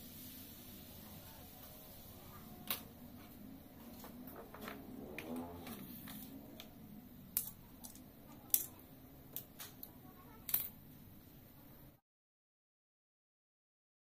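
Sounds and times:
tools clacking on tile floor: 2.6s - 10.8s.

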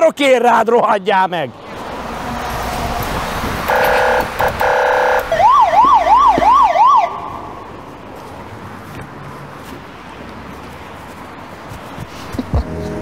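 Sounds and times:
car alarm siren: 3.7s - 7.5s.

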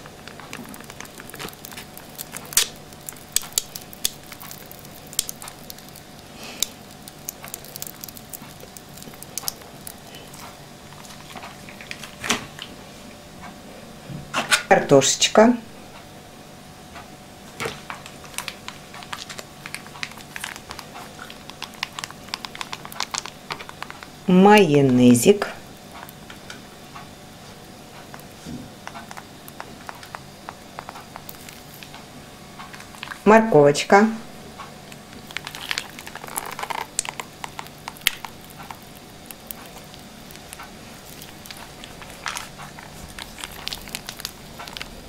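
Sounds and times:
plastic pouch clicks and crinkles: 0.1s - 10.3s, 17.9s - 24.1s, 28.2s - 32.0s, 35.1s - 45.0s.

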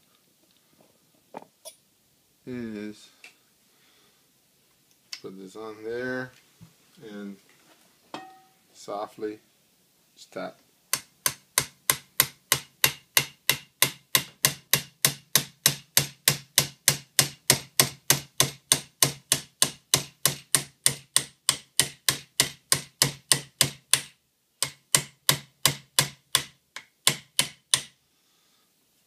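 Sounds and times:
hammer tapping metal punch: 11.0s - 27.9s.

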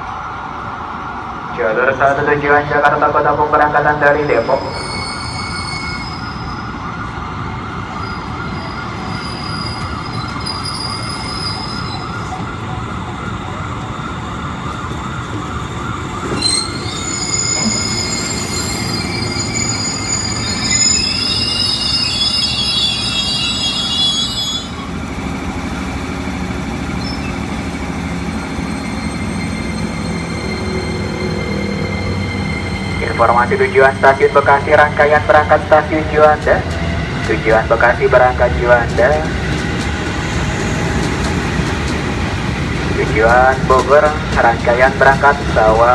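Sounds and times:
electric train rumbling: 0.0s - 45.9s
wheel squeal: 16.3s - 24.8s.

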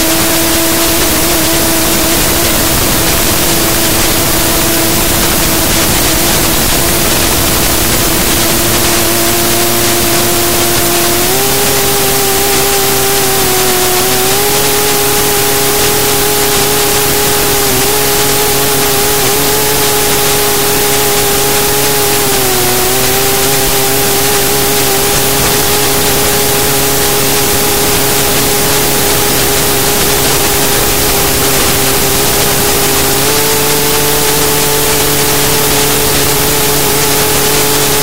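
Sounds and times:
wind rush: 0.0s - 10.3s
quadcopter motors humming: 0.0s - 38.0s.

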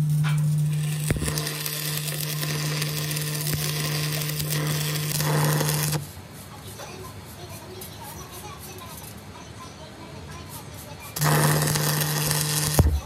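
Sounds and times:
workshop machine humming: 0.0s - 6.3s, 11.2s - 13.0s
hissing crackling noise: 0.6s - 6.5s, 11.2s - 13.0s.

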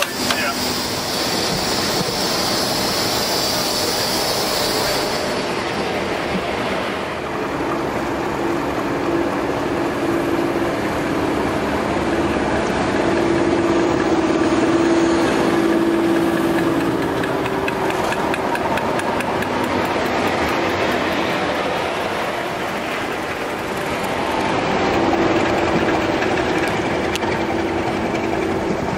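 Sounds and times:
wheels clicking over rail joints: 0.0s - 4.2s, 11.5s - 28.9s
diesel locomotive engine humming: 0.0s - 28.9s.

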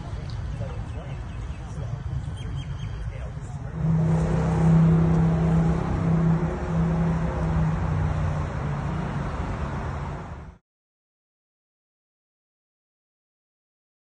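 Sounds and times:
road traffic: 0.0s - 10.6s
vehicle engine running: 0.0s - 10.6s.

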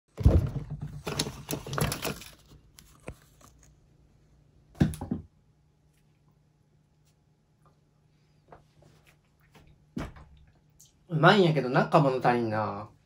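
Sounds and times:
packaged food rustling: 0.7s - 3.8s.

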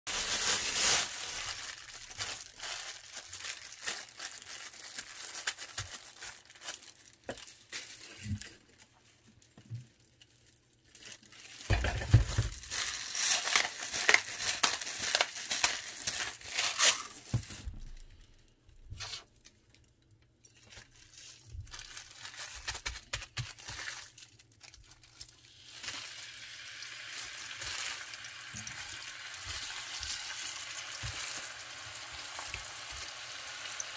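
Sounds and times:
plastic wrapping crinkling: 0.1s - 33.9s
meat sizzling in a frying pan: 25.4s - 33.9s.

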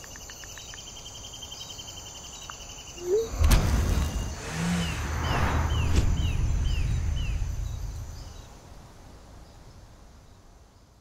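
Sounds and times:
forest ambience: 0.0s - 11.0s
bird calling short falling notes: 3.0s - 8.4s
low rumble: 3.1s - 10.6s.

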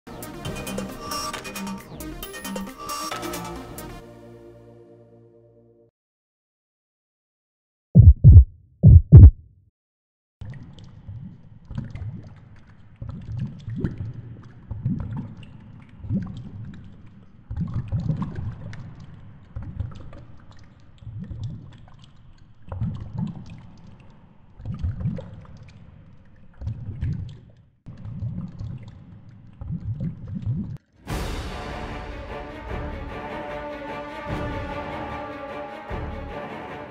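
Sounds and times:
heartbeat double thumps: 8.0s - 9.5s.

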